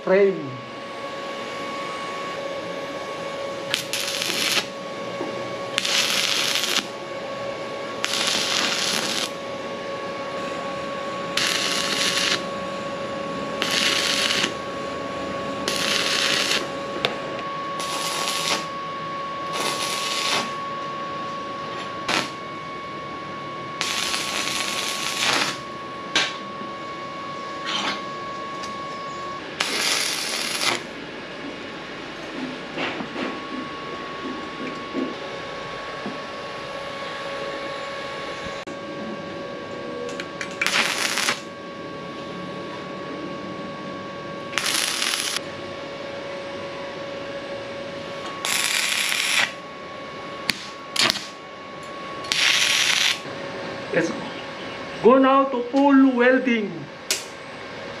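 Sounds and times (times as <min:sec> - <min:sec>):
steady hum: 0:00.0 - 0:58.0
arc welding crackling hiss: 0:03.7 - 0:04.7, 0:05.7 - 0:07.0, 0:08.0 - 0:09.4, 0:11.4 - 0:12.5, 0:13.6 - 0:14.6, 0:15.6 - 0:16.8, 0:17.8 - 0:18.7, 0:19.5 - 0:20.6, 0:22.0 - 0:22.4, 0:23.8 - 0:25.6, 0:29.6 - 0:30.9, 0:40.5 - 0:41.5, 0:44.5 - 0:45.4, 0:48.4 - 0:49.6, 0:50.5 - 0:51.4, 0:52.3 - 0:53.2.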